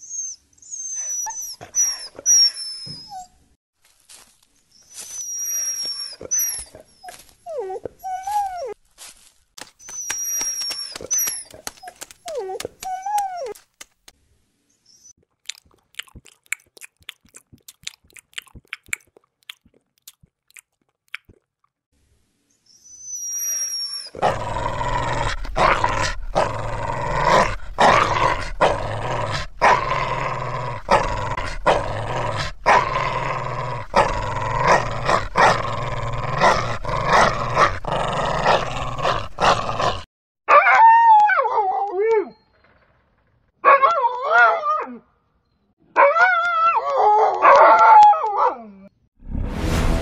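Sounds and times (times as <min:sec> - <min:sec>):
dog growling: 0:24.1 - 0:40.1.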